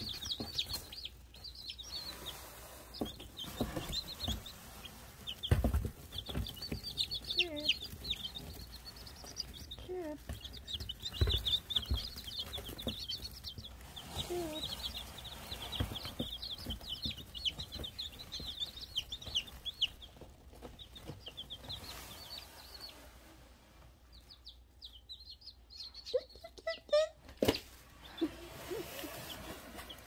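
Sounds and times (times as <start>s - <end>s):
rustling and knocks: 0.0s - 24.0s
chicks peeping: 0.0s - 30.0s.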